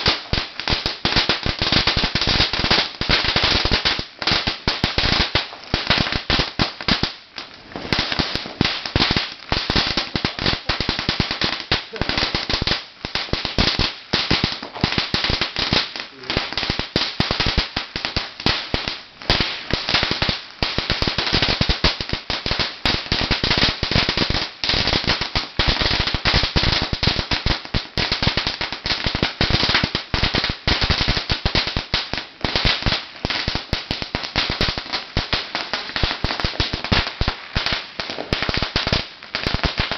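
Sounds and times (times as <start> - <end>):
firecrackers crackling: 0.0 - 39.9.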